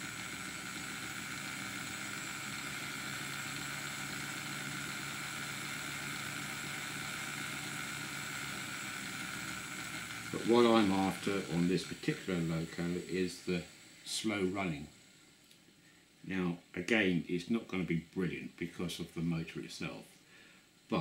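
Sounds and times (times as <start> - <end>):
model train motor rattling: 0.0 - 15.3.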